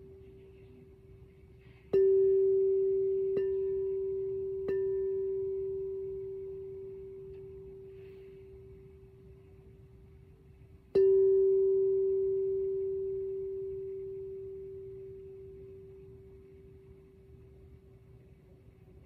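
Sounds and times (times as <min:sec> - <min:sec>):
singing bowl struck and ringing: 0:01.9 - 0:09.4, 0:10.9 - 0:17.6.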